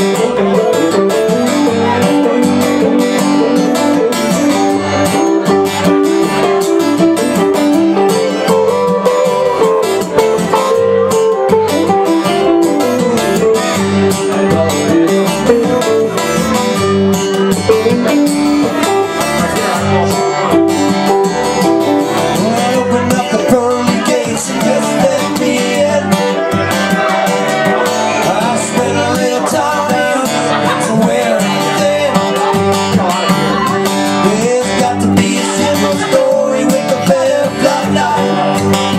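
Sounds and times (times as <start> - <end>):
strummed acoustic guitars: 0.0 - 38.9.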